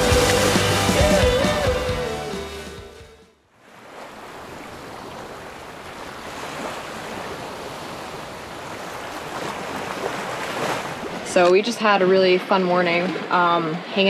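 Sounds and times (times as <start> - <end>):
sea water rushing: 0.0 - 2.4, 3.6 - 14.0
music: 0.0 - 3.4.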